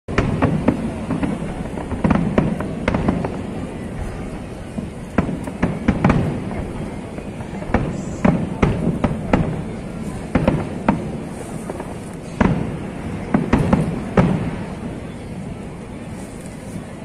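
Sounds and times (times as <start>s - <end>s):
continuous low rumble: 0.1s - 17.0s
fireworks bangs: 0.1s - 17.0s.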